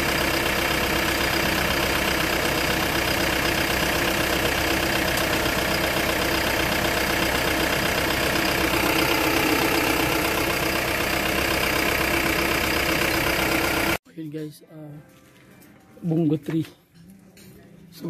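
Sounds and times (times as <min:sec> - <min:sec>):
diesel engine idling: 0:00.0 - 0:14.0.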